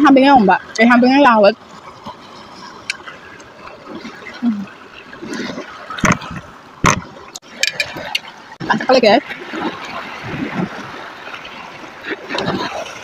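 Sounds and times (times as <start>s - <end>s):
waves washing over pebbles: 0.3s - 13.0s
sharp knocks: 6.0s - 7.2s.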